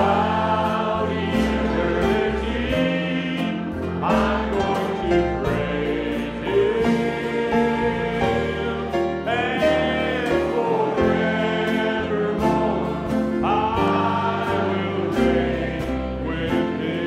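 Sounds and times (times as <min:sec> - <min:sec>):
band with acoustic guitar: 0:00.0 - 0:17.0
group singing gospel song: 0:00.0 - 0:17.0.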